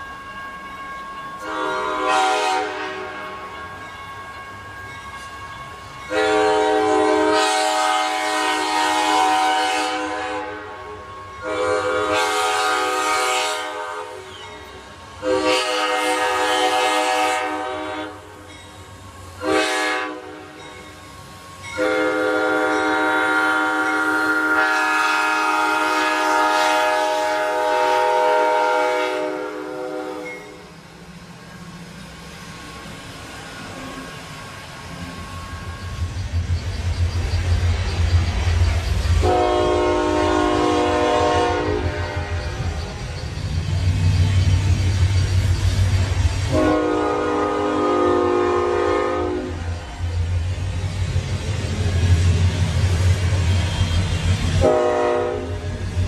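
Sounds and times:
locomotive horn blasts: 0:01.4 - 0:03.5, 0:06.1 - 0:14.3, 0:15.2 - 0:18.3, 0:19.4 - 0:20.6, 0:21.8 - 0:30.6, 0:39.2 - 0:42.6, 0:46.5 - 0:49.6, 0:53.9 - 0:55.7.

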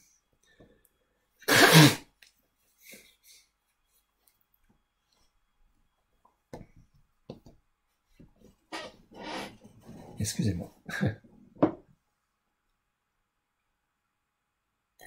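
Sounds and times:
man blowing nose: 0:01.4 - 0:02.1.

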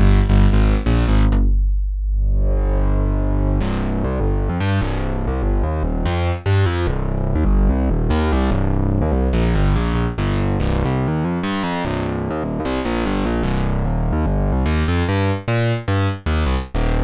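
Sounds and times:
held low synthesizer note: 0:00.0 - 0:06.1
rhythmic synth bass notes: 0:00.0 - 0:17.0.

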